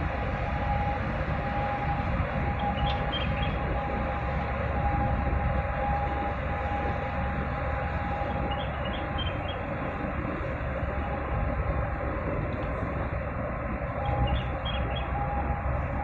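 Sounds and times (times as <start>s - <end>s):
ship rumbling and rushing: 0.0s - 16.0s.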